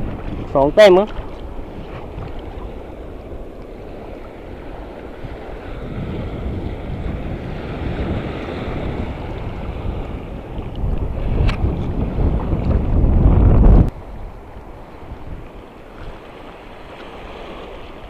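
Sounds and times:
sea water washing around rocks: 0.0 - 18.0
wind buffeting microphone: 0.0 - 18.0.

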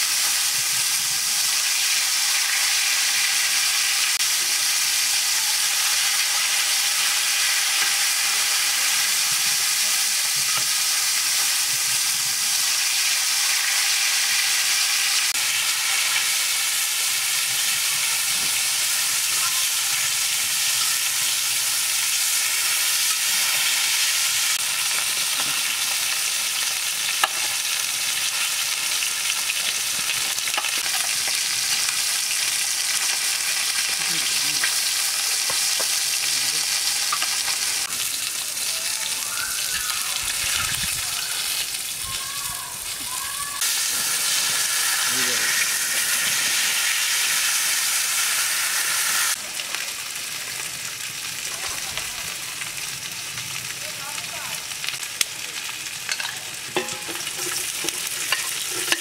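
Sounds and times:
fish sizzling in hot oil: 0.0 - 59.0
metal spatula scraping and tapping pan: 56.1 - 59.0.

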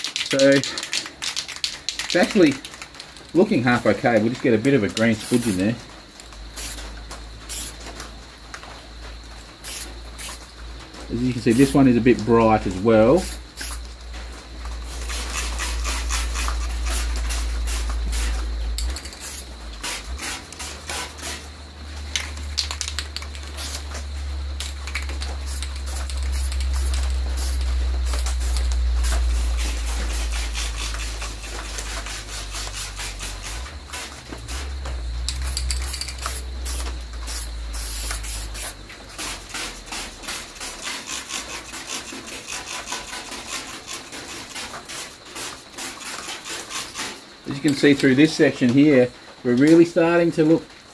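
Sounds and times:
spray-paint can hissing: 0.0 - 2.8, 4.7 - 5.7, 6.6 - 7.8, 9.6 - 10.5, 11.5 - 11.8, 13.2 - 13.8, 14.8 - 21.5, 22.1 - 47.9.

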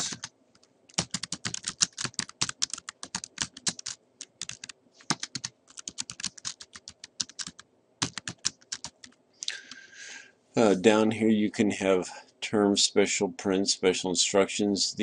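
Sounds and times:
computer keyboard typing: 0.0 - 9.2.

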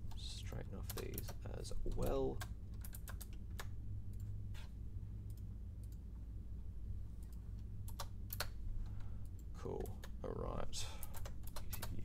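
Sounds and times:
steady low hum: 0.0 - 12.0
computer mouse clicks: 7.2 - 10.2, 11.0 - 12.0.

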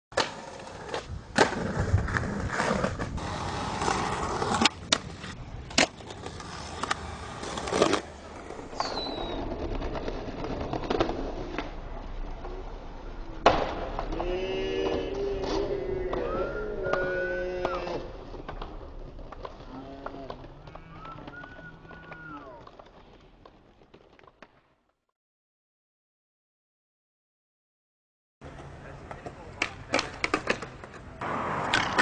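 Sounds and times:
skateboard cracks and landings: 0.1 - 12.6, 13.4 - 16.3, 16.9 - 24.9, 29.0 - 32.0
skateboard trucks scraping ledges: 0.1 - 12.8, 28.5 - 32.0
skateboard wheels rolling: 0.1 - 24.8, 28.4 - 32.0.

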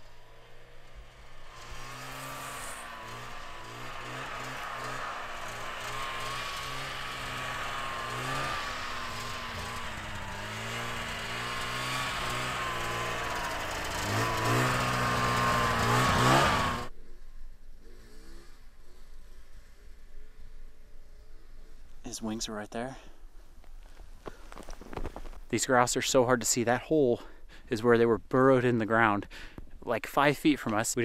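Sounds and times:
snowmobile engine revving: 0.0 - 16.9.

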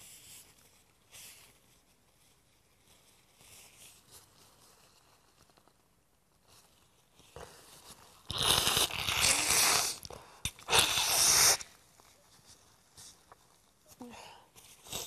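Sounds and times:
nose blowing into tissue: 8.2 - 11.9, 14.7 - 15.0.

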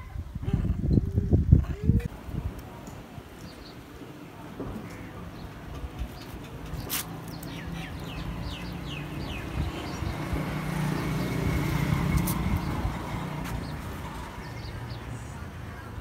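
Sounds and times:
bird chirping: 5.3 - 12.8
low engine hum: 7.5 - 16.0.

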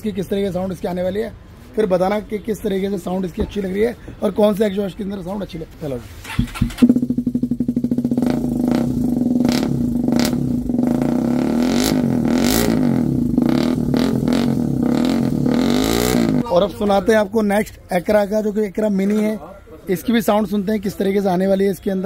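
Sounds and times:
motorcycle engine idling and revving: 6.2 - 16.5.

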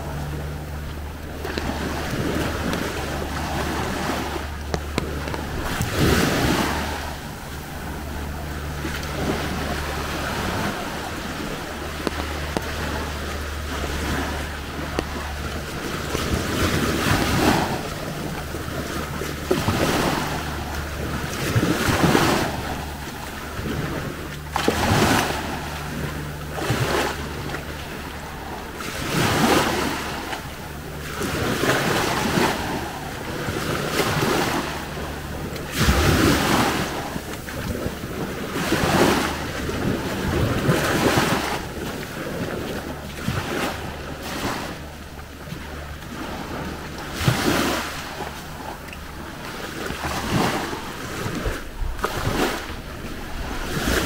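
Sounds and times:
sea waves washing onto beach: 0.0 - 54.0
steady low hum: 0.0 - 54.0
wind buffeting microphone: 0.0 - 54.0.

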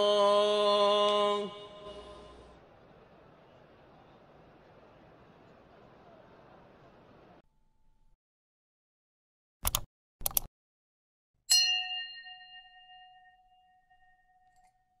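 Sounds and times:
bright bell ding: 11.5 - 14.8.

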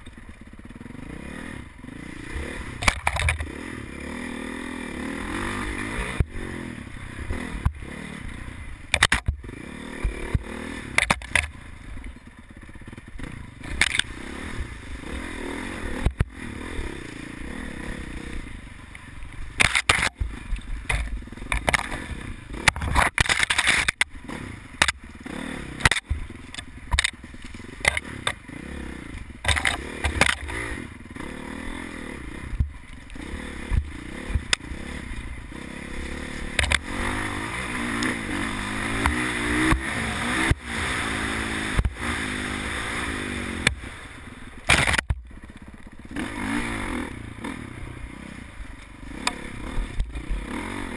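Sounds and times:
dirt bike engine revving: 0.5 - 50.9
bike knocking on rocks and brush: 2.8 - 3.6, 8.8 - 12.3, 12.9 - 14.2, 19.5 - 25.2, 25.8 - 28.6, 29.2 - 30.7, 32.5 - 40.6, 41.5 - 42.2, 44.6 - 46.0.

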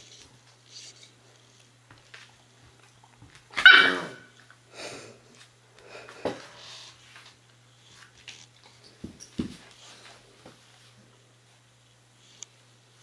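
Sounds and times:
dog sharp bark: 3.6 - 4.3
dog yips: 3.6 - 4.3.

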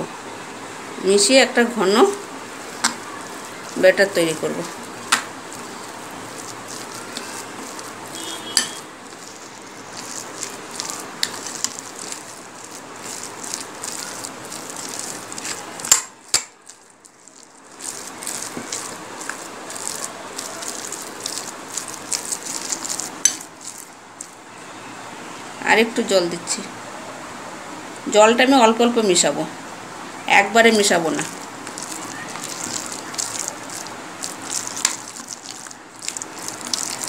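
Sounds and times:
wet paste squelching: 1.6 - 24.4, 30.7 - 37.0.

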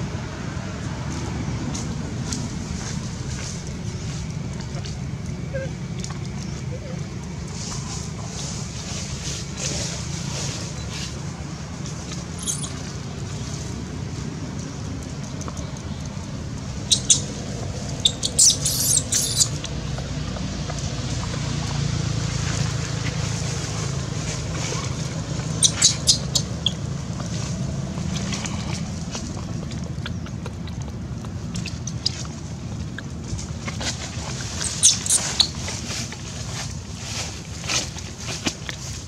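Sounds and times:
steady low hum: 0.0 - 39.0
high-pitched squeaks: 12.4 - 12.8, 18.0 - 19.6, 34.6 - 35.6.

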